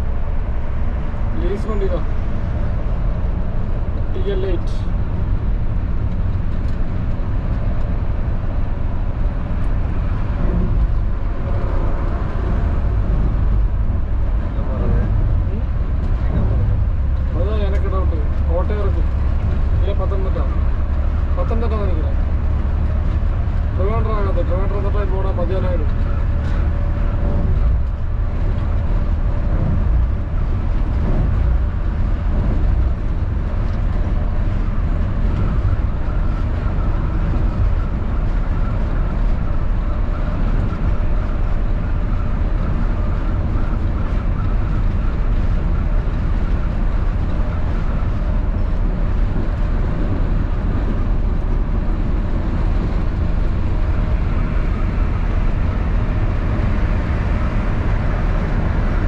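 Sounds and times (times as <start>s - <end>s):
coach engine and road rumble: 0.0s - 59.0s.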